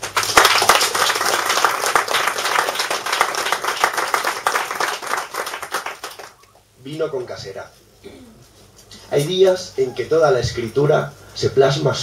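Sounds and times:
audience clapping: 0:00.0 - 0:06.6.

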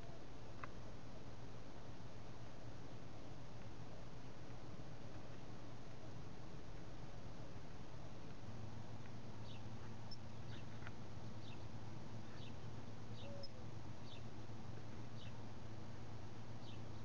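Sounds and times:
low steady hum: 0:00.0 - 0:17.0
small bird chirping: 0:09.4 - 0:14.3, 0:15.1 - 0:15.4, 0:16.6 - 0:17.0.

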